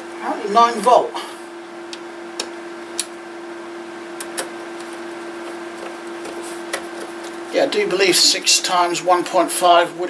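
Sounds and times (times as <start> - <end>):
steady hum: 0.0 - 10.0.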